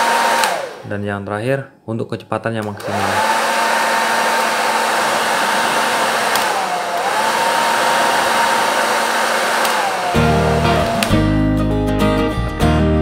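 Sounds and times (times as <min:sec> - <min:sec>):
hair dryer running: 0:00.0 - 0:00.9, 0:02.6 - 0:11.3.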